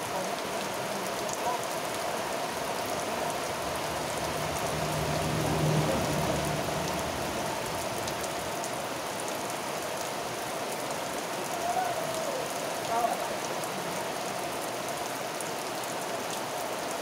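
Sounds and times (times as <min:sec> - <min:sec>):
rain on leaves and ground: 0:00.0 - 0:17.0
low hum: 0:03.1 - 0:08.6.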